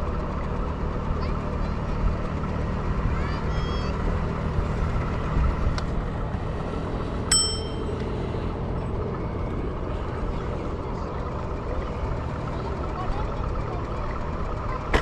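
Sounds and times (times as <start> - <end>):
electric scooter rumble: 0.0 - 15.0
metallic ding: 7.3 - 8.0.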